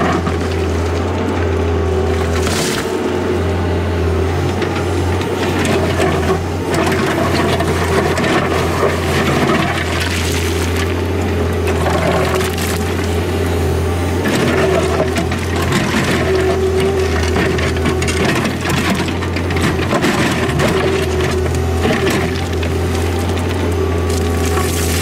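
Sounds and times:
diesel engine droning: 0.0s - 25.0s
stones clattering and crunching: 2.2s - 3.0s, 14.2s - 25.0s
steel bucket scraping rock: 5.5s - 11.0s, 14.2s - 25.0s.

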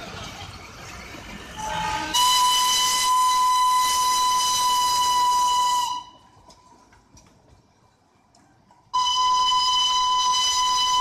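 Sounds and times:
steam whistle blast: 1.6s - 6.2s, 8.9s - 11.0s.

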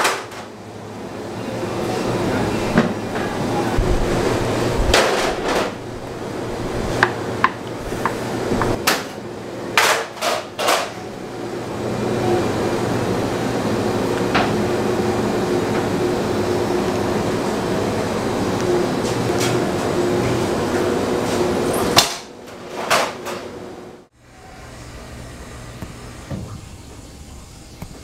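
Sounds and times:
machine hum: 0.0s - 28.0s.

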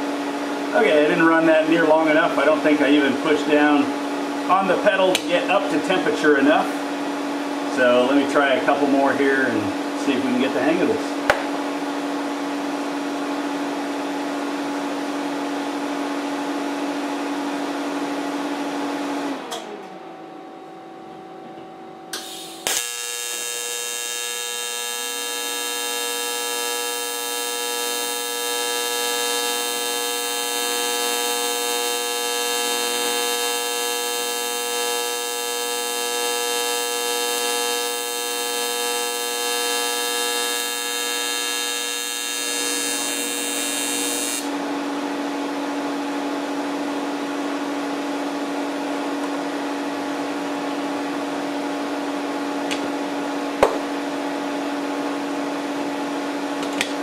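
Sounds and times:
low hum with hiss: 0.0s - 23.4s
welding arc buzzing: 22.1s - 44.6s.

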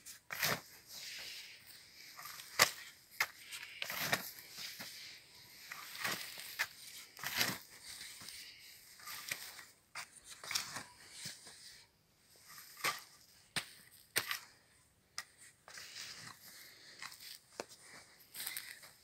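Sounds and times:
spade crunching into soil: 0.1s - 1.4s, 2.0s - 11.4s, 12.4s - 14.6s.

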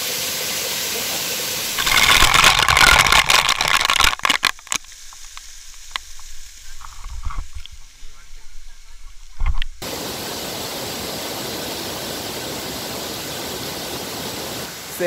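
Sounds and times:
waterfall pouring: 0.0s - 15.0s
water spattering on microphone: 1.6s - 9.8s
scattered clicks: 1.8s - 6.2s.

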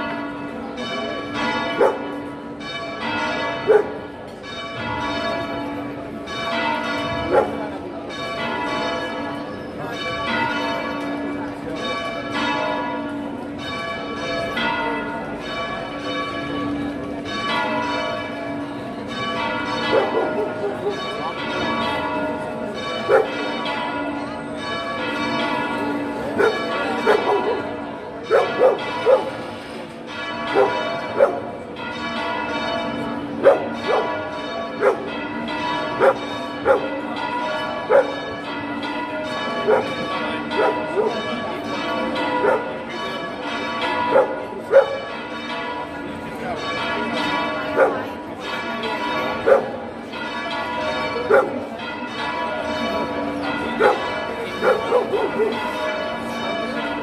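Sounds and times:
church bells ringing a peal: 0.0s - 57.0s
dog barking: 1.8s - 2.1s, 3.7s - 4.0s, 7.3s - 7.6s, 19.9s - 20.8s, 23.1s - 23.4s, 26.4s - 27.6s, 28.3s - 29.4s, 30.5s - 31.5s, 33.4s - 34.1s, 34.8s - 35.1s, 36.0s - 36.9s, 37.9s - 38.2s, 39.7s - 39.9s, 40.6s - 41.2s, 42.4s - 42.7s, 44.1s - 45.0s, 47.8s - 48.0s, 49.4s - 49.7s, 51.3s - 51.6s, 53.8s - 55.6s.

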